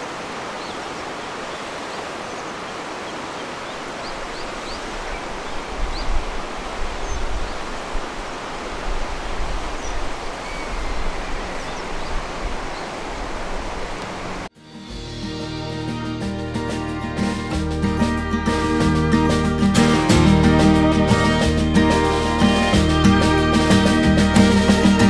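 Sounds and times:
river rushing over rocks: 0.0s - 14.5s
faint bird chirps: 9.6s - 13.0s.

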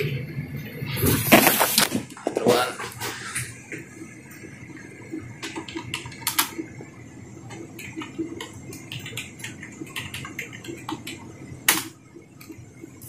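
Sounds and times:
keyboard typing: 5.4s - 6.6s, 7.5s - 11.9s.

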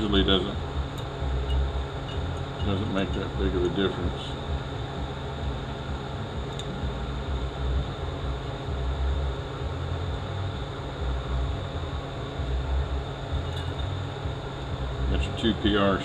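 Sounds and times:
low rumble of shop machinery: 0.0s - 16.0s.

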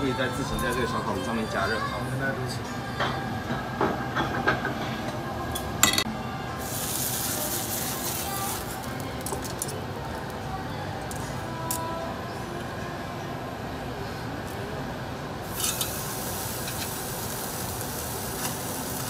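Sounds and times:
tableware and tongs clinking: 5.6s - 6.1s, 15.5s - 16.0s
flame hissing through grate: 6.5s - 9.7s, 15.4s - 19.0s.

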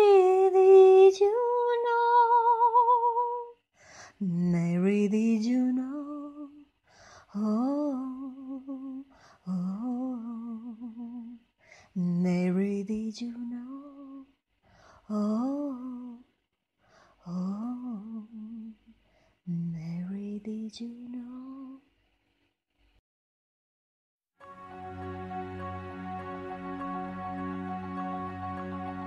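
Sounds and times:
woman breathing in: 3.8s - 4.2s, 6.8s - 7.4s, 9.1s - 9.5s, 11.6s - 12.0s, 14.6s - 15.1s, 16.8s - 17.2s, 19.0s - 19.4s.

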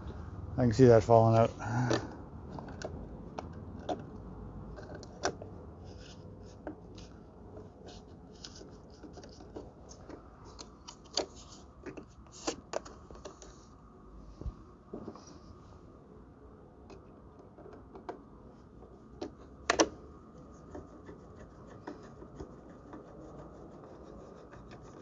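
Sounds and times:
light clicks and scrapes: 4.7s - 13.8s.

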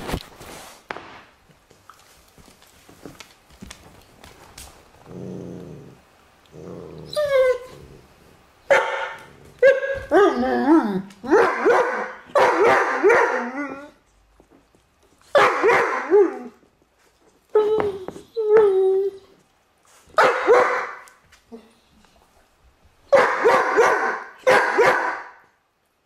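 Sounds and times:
dogs growling: 4.9s - 8.5s
dogs yipping and whining: 7.0s - 8.0s, 8.7s - 14.0s, 15.4s - 16.6s, 17.5s - 19.4s.

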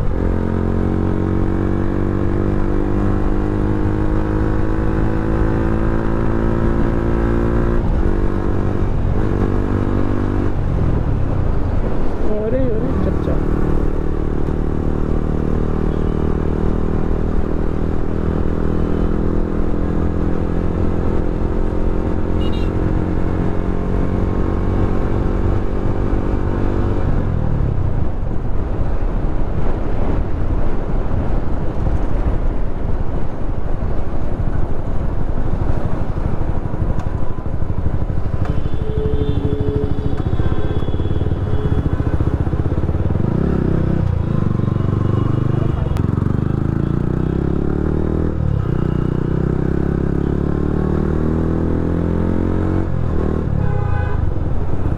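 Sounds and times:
road noise: 0.0s - 54.9s
wind noise: 6.2s - 14.1s, 20.6s - 44.5s
motorcycle engine running: 33.8s - 54.9s.

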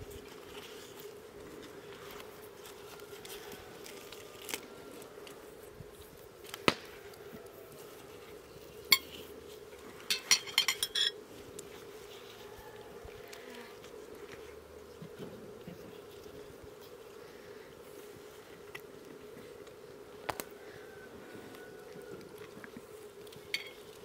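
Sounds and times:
faint steady hum: 0.0s - 24.0s
dishes and utensils clinking: 10.1s - 11.2s.

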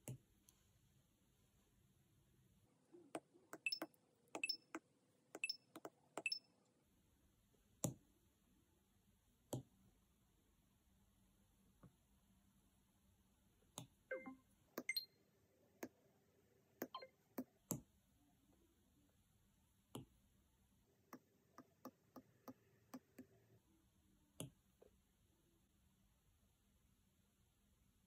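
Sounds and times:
stylus tapping on glass screen: 3.1s - 4.8s, 5.4s - 6.4s.

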